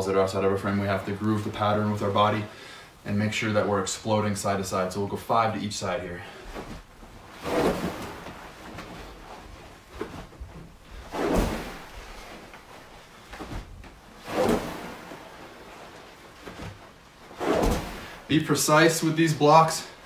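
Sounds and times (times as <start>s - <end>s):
padded gear shuffling: 6.3s - 18.3s.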